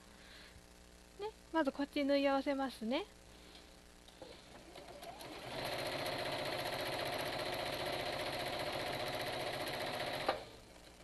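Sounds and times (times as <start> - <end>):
sewing machine stitching: 4.6 - 10.5.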